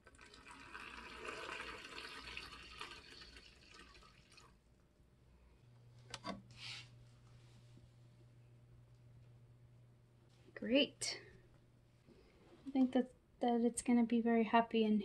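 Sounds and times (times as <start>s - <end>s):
water trickling into a dish: 0.0s - 4.6s.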